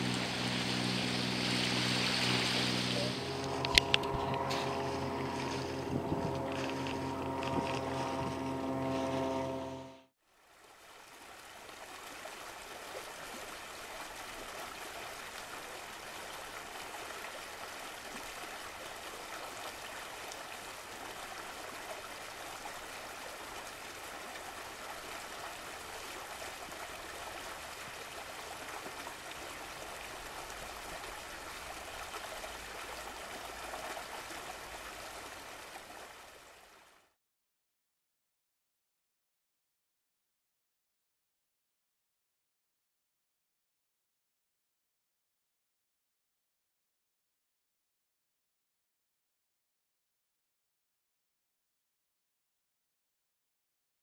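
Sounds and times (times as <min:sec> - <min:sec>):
waterfall rushing: 0:00.0 - 0:08.2.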